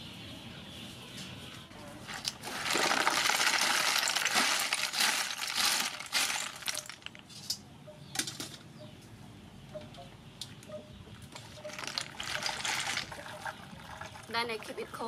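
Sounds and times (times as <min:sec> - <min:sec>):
snail shells clattering: 0:02.1 - 0:07.6, 0:11.4 - 0:13.4
water splashing: 0:11.6 - 0:14.9.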